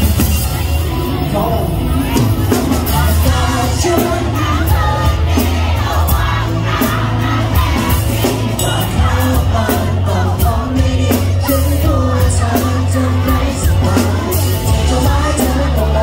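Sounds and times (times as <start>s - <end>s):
live pop band playing: 0.0s - 16.0s
man singing into a microphone: 0.9s - 5.4s, 8.2s - 16.0s.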